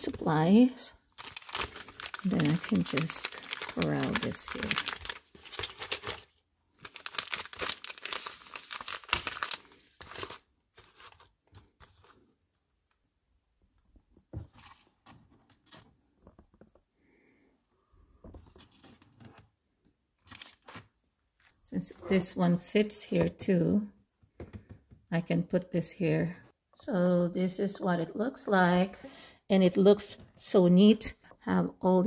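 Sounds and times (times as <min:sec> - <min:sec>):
foil sachets crinkling: 0:01.1 - 0:11.3.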